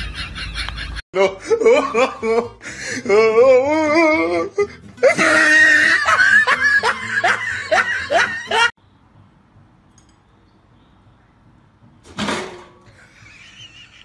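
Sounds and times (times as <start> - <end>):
person laughing hard: 0.0 - 8.7, 13.0 - 14.0.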